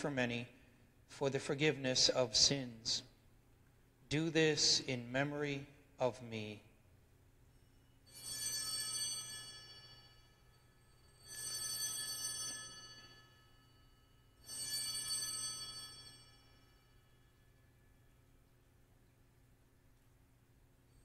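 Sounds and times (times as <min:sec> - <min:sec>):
altar bells ringing: 0:07.5 - 0:18.2.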